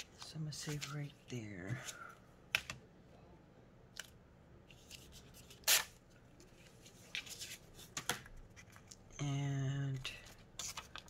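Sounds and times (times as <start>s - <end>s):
paper rustling: 0.0s - 2.0s, 10.2s - 11.0s.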